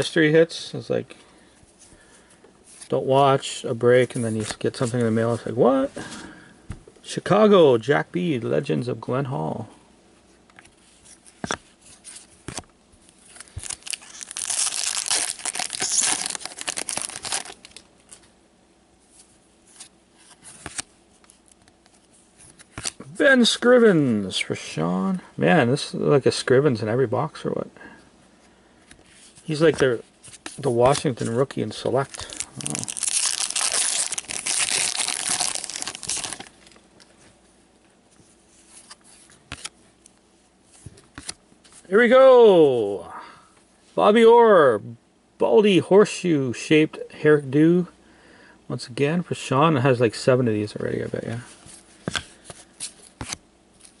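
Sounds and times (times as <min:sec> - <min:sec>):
foil wrapper tearing and crinkling: 0:13.4 - 0:17.9, 0:32.0 - 0:36.6.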